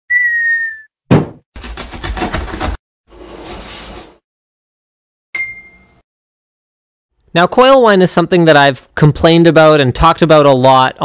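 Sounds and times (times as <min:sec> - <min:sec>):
gliding whistle: 0:00.1 - 0:00.9
cartoon thump: 0:01.1 - 0:01.5
bright ding: 0:05.4 - 0:06.0.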